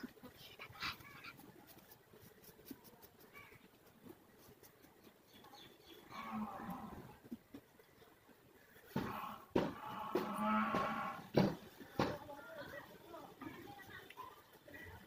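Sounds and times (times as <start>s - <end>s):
comb scratching: 0.6s - 5.4s.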